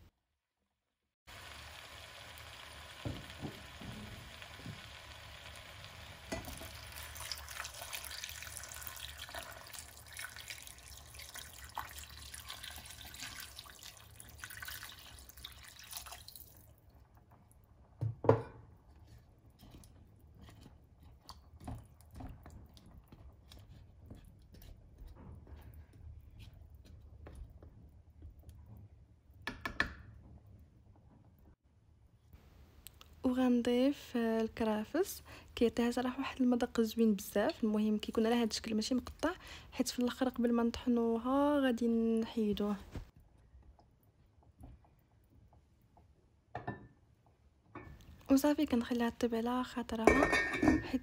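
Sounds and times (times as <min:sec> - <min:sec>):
water pouring into a pot: 0:01.3 - 0:17.3
wooden spoon stirring vegetables: 0:16.8 - 0:29.0.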